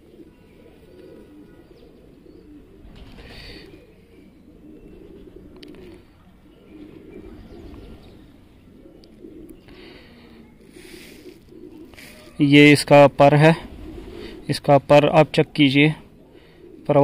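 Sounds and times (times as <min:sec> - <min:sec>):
pigeons cooing: 0:00.0 - 0:17.0
rustle: 0:09.0 - 0:12.7.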